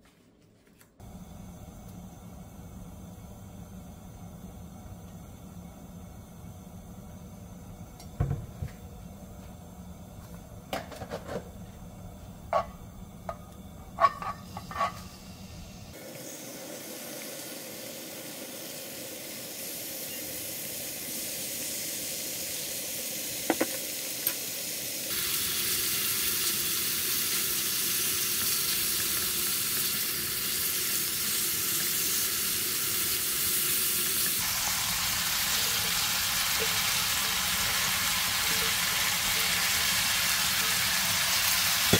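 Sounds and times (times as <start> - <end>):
bacon sizzling in a pan: 14.0 - 41.9.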